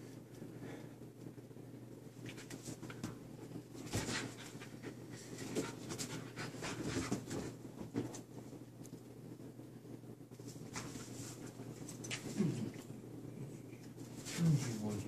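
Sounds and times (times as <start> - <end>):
dogs scuffling on leather couch: 2.3 - 8.5
dogs panting: 3.3 - 7.6.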